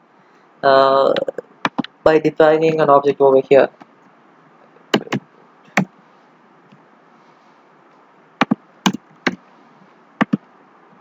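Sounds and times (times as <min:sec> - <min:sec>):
faint steady hiss: 0:00.0 - 0:11.0
keyboard keystrokes clicking: 0:01.2 - 0:01.9, 0:08.4 - 0:09.4, 0:10.2 - 0:10.4.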